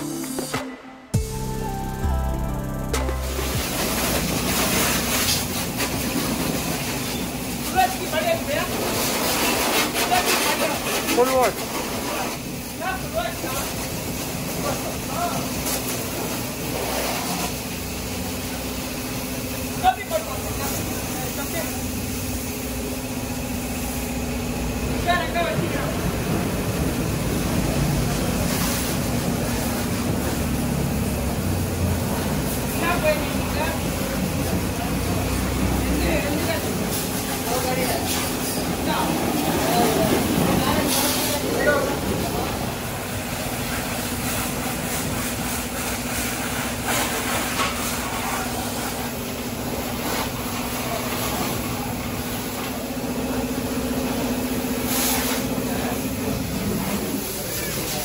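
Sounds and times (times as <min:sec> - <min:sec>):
car wash motor hum: 0:00.0 - 0:58.0
motor hum: 0:01.2 - 0:05.8
water spray hissing: 0:03.1 - 0:24.6, 0:26.7 - 0:52.9, 0:54.7 - 0:58.0
hissing spurts: 0:31.7 - 0:52.4.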